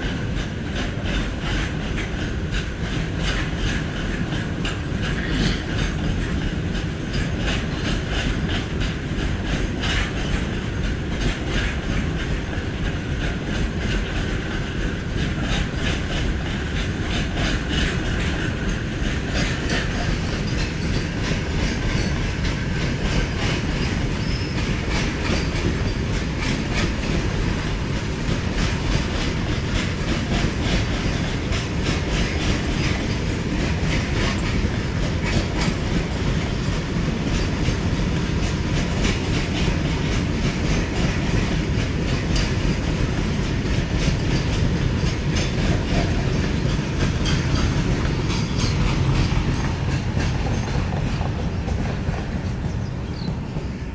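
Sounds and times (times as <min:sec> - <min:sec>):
freight train rolling past: 0:00.0 - 0:53.9
wheels clacking over rail joints: 0:00.0 - 0:53.9.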